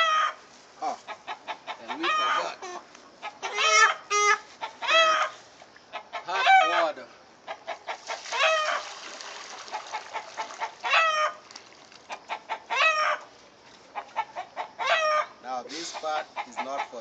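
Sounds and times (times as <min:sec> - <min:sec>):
chicken squawking: 0:00.0 - 0:06.9, 0:07.5 - 0:08.9, 0:09.7 - 0:11.4, 0:12.1 - 0:13.3, 0:14.0 - 0:15.3
water pouring into basin: 0:07.9 - 0:12.1.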